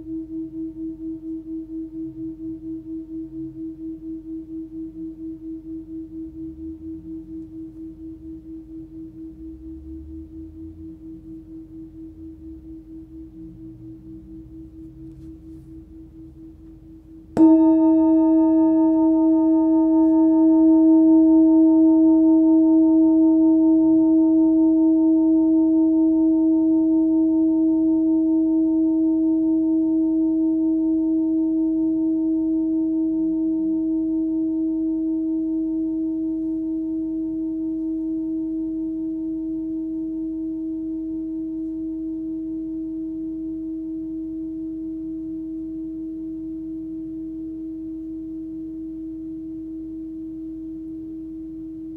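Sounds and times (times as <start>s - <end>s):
singing bowl ringing: 0.0s - 51.9s.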